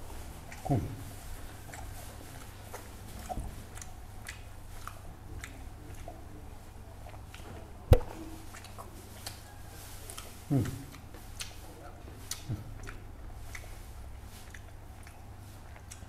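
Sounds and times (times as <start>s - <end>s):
person chewing food: 1.5s - 6.2s, 12.2s - 16.0s
sharp knock: 7.9s - 8.2s.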